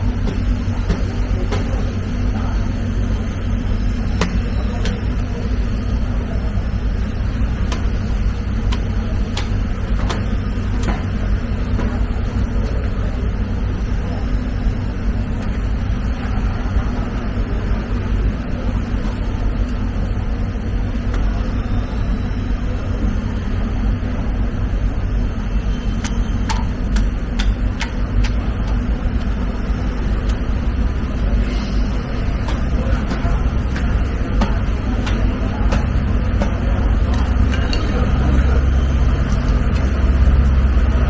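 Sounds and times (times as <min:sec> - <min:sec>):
low rumble of machinery: 0:00.0 - 0:41.0.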